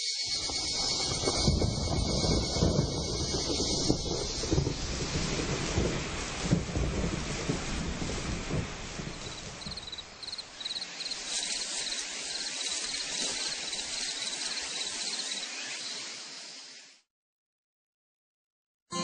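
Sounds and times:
insect chirping: 0.0 - 5.0, 9.0 - 17.0
rain hissing: 0.1 - 17.1.

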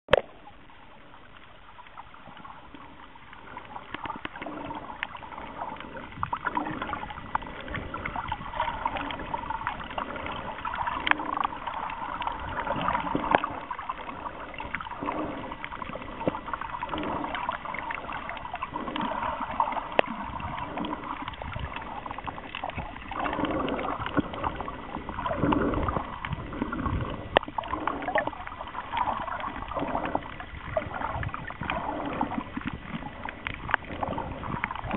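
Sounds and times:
sharp clicks underwater: 0.1 - 34.9
underwater sloshing and gurgling: 0.1 - 34.9.

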